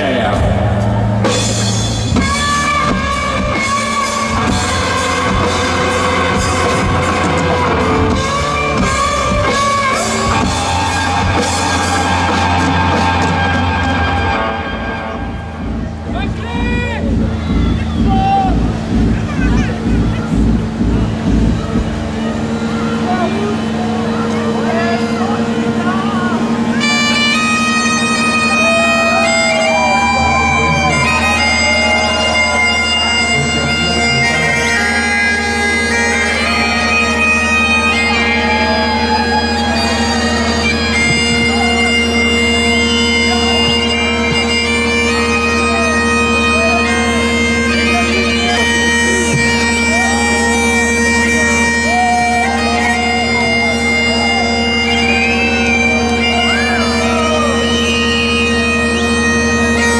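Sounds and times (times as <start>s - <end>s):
bagpipes playing a tune: 1.9s - 59.9s.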